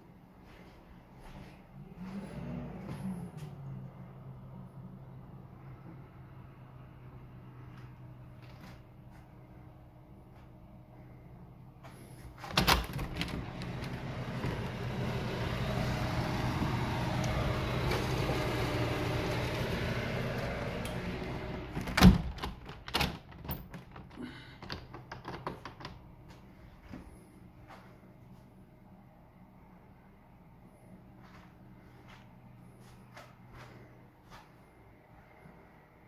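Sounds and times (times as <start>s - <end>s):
street noise with low hum: 0.0s - 12.5s, 26.2s - 36.0s
window opening clunk: 12.4s - 24.0s.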